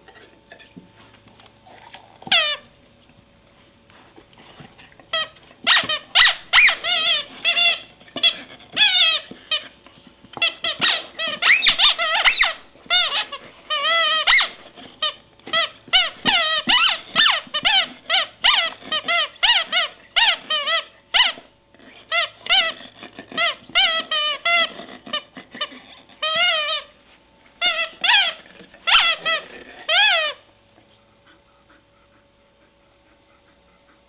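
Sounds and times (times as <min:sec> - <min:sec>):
squeaky dog toy squealing: 0:02.3 - 0:02.6, 0:05.1 - 0:09.6, 0:10.4 - 0:26.9, 0:27.6 - 0:30.4.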